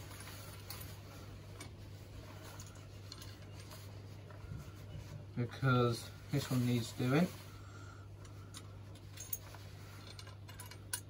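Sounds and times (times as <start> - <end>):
steady low hum: 0.0 - 11.0
metal plumbing parts clicking: 8.2 - 11.0.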